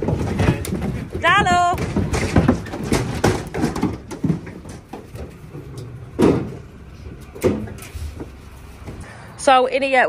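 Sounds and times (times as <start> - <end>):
livestock trailer metal clatter: 0.0 - 9.1
hooves on trailer floor: 0.0 - 9.5.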